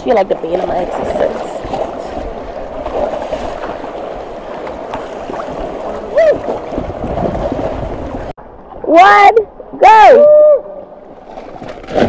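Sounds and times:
water sloshing and lapping: 0.0s - 9.8s, 10.8s - 12.0s
person shouting: 8.9s - 10.6s.

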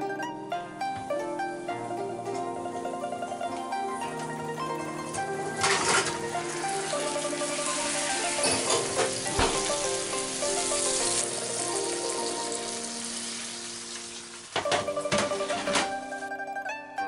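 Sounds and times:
plucked-string background music: 0.0s - 17.0s
fat sizzling in roasting tin: 5.1s - 16.2s
clattering knocks: 8.3s - 11.0s, 14.5s - 16.2s.

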